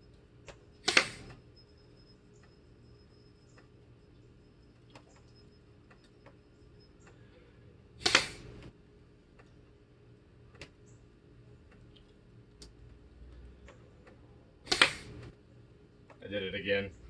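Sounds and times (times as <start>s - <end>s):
blowgun puff firing a dart: 0.8s - 1.3s, 8.0s - 8.5s, 14.7s - 15.2s.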